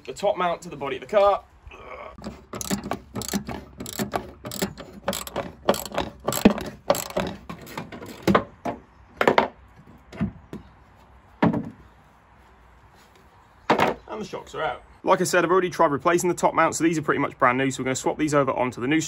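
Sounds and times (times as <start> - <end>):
socket ratchet clicking: 2.5 - 7.4.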